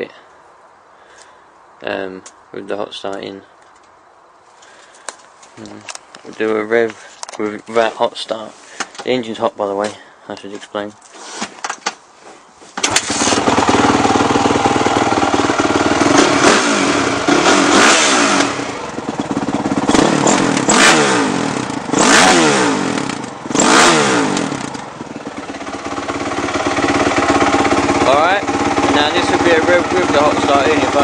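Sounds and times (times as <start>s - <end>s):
dirt bike engine revving: 12.8s - 31.0s
sharp exhaust pops: 19.2s - 24.8s.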